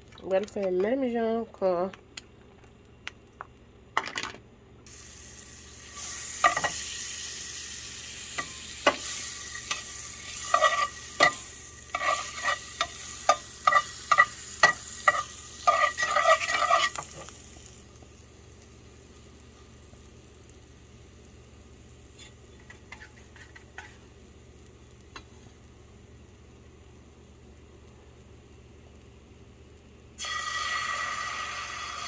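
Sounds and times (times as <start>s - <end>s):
butter sizzling in frying pan: 4.9s - 32.0s
spatula scraping and tapping pan: 6.4s - 6.8s, 8.3s - 17.4s, 22.2s - 24.1s.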